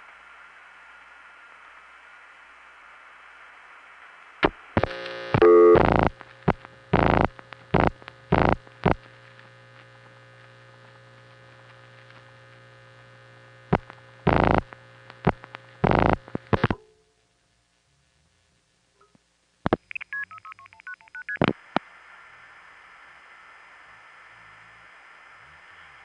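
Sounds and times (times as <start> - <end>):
loud crackling bursts and clicks: 4.0 - 16.8, 19.6 - 22.0
telephone line hiss: 4.4 - 9.1, 13.7 - 16.8
low hum on phone line: 4.4 - 17.2.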